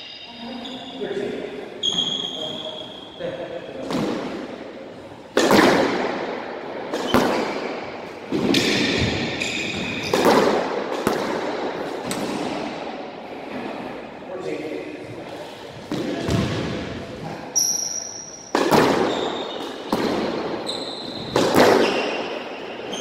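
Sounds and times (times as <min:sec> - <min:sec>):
shoes squeaking on court floor: 0:00.0 - 0:01.1, 0:01.8 - 0:03.2, 0:07.0 - 0:10.3, 0:17.6 - 0:23.0
rackets hitting ball: 0:03.8 - 0:14.0, 0:15.7 - 0:17.0, 0:17.6 - 0:23.0.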